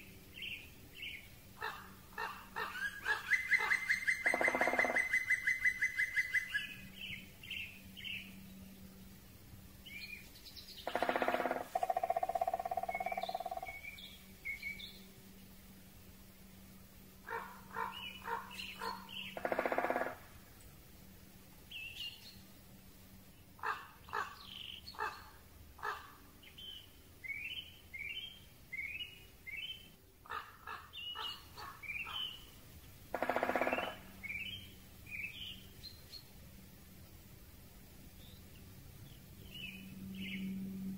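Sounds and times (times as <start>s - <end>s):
songbirds chirping: 0.0s - 40.9s
woodpecker drumming on tree: 3.6s - 5.3s, 10.8s - 13.7s, 17.3s - 20.2s, 33.1s - 34.1s.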